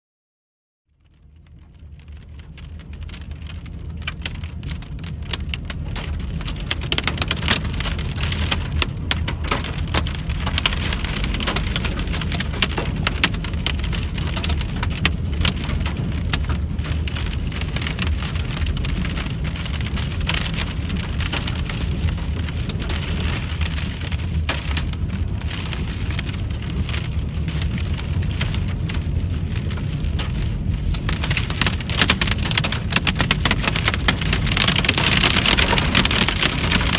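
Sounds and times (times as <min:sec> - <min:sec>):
constant low rumble: 0:00.9 - 0:36.9
rain on car windshield and roof: 0:00.9 - 0:36.9.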